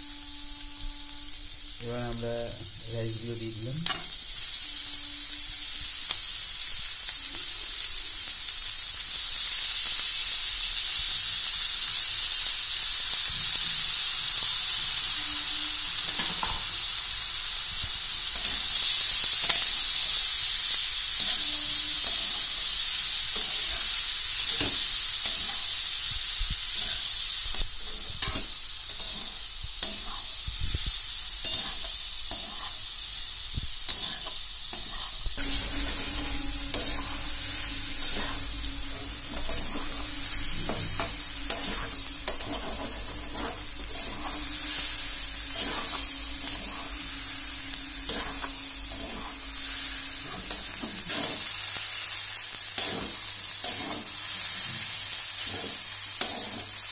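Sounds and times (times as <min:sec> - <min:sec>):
rice sizzling in a wok: 0:00.0 - 0:56.9
metal spatula scraping a pan: 0:23.4 - 0:25.7, 0:26.8 - 0:30.4, 0:31.4 - 0:32.9, 0:33.9 - 0:52.1, 0:52.8 - 0:54.1, 0:55.4 - 0:56.8.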